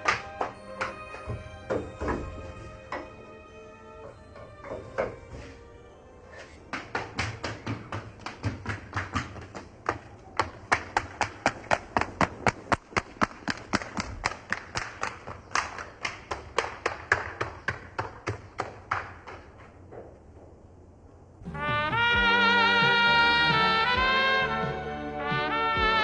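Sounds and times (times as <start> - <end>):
rapid sharp taps: 6.7 - 19.6.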